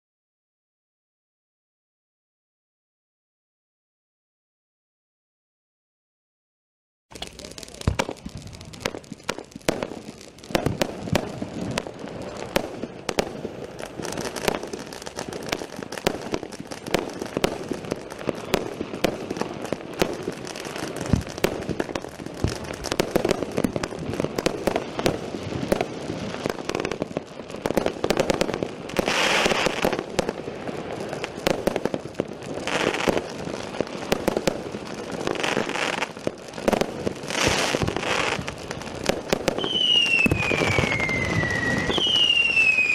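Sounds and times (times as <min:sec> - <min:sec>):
firework cake firing: 0:07.1 - 0:42.9.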